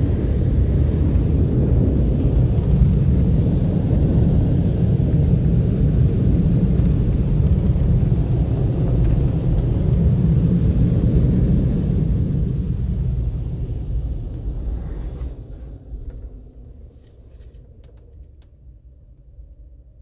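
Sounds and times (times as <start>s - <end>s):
car wash dryer blowers rushing: 0.0s - 17.5s.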